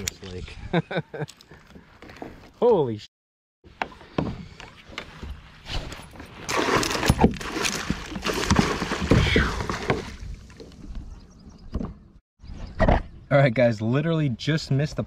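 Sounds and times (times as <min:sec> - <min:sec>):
fish thrashing water splashing: 0:06.5 - 0:10.2.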